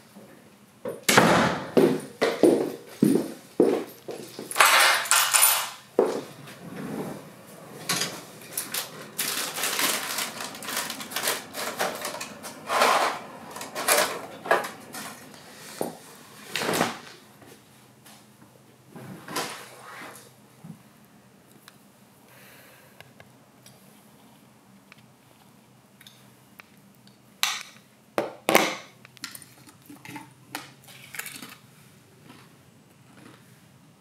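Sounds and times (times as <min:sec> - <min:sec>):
packages crinkling: 0:08.4 - 0:14.2.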